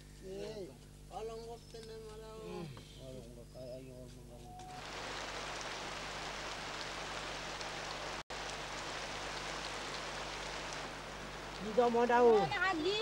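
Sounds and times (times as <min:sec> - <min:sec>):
rain falling on foliage: 0:04.1 - 0:13.0.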